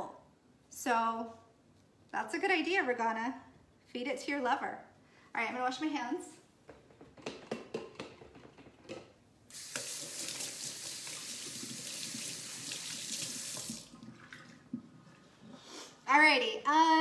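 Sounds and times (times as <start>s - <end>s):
tap water running into sink: 9.5s - 14.9s.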